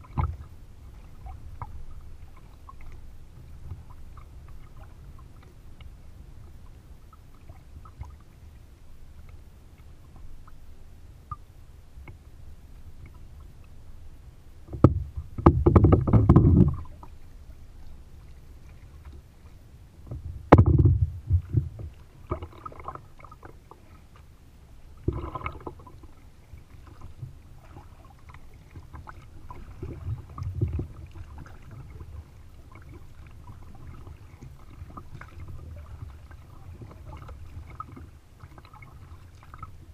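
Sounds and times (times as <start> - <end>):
paddle splashing in water: 0.0 - 5.9, 14.7 - 39.9
low rumble of water: 0.0 - 39.9.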